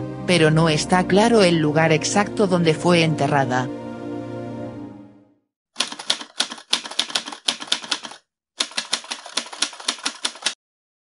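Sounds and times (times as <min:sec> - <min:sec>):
typewriter key clacks: 0:05.8 - 0:10.6.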